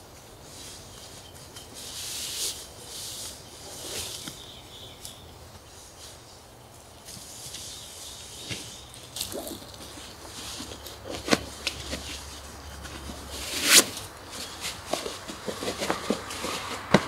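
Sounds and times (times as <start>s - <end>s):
nylon sleeping bag rustling: 7.2s - 17.0s.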